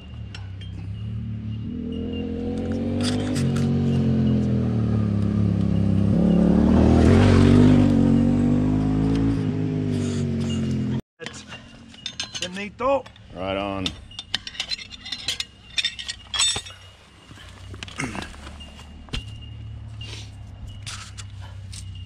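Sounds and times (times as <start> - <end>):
light metallic clinks: 0.0 - 4.5, 10.4 - 22.0
vehicle engine passing: 0.8 - 11.0.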